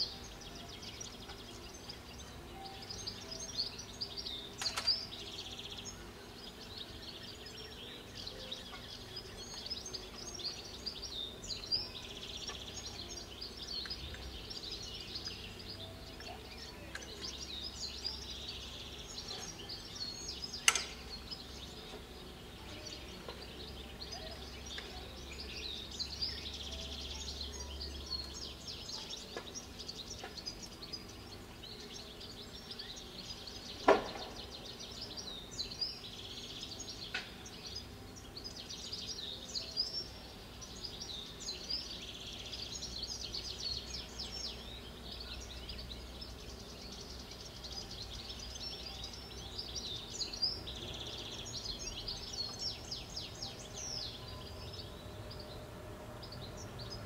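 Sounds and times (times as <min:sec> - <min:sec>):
birdsong chirps and trills: 0:00.0 - 0:57.0.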